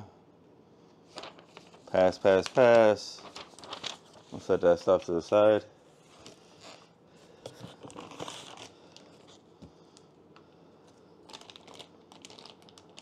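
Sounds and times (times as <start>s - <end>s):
packaging rustling and crinkling: 1.1s - 5.2s, 7.5s - 9.5s, 11.2s - 13.0s.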